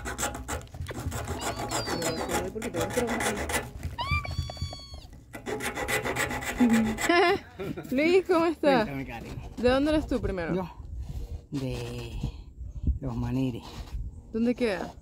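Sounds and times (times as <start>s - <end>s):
knife scraping gourd shell: 0.0s - 7.2s.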